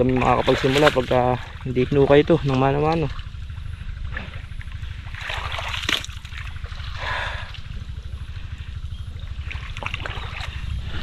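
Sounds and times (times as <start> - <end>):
water rushing and splashing: 0.0 - 3.3
low rumble: 0.0 - 11.0.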